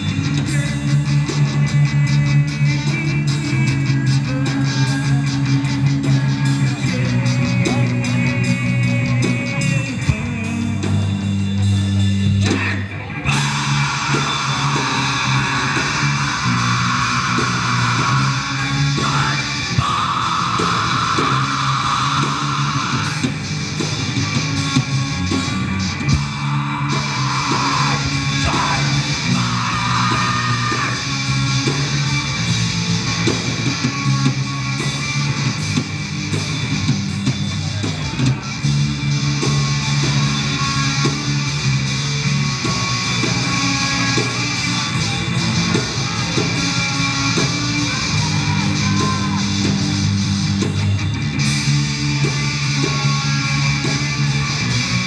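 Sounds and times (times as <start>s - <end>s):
bass guitar: 0.0s - 55.0s
driving drum beat: 0.0s - 55.0s
electric guitars: 0.0s - 55.0s
singer shouting into microphone: 6.1s - 23.4s, 25.4s - 31.5s, 43.5s - 50.0s.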